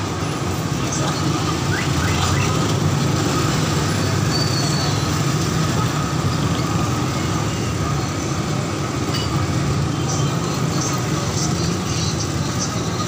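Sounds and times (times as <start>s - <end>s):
street traffic rumble: 0.0s - 13.0s
brief high squeaks: 4.2s - 5.1s.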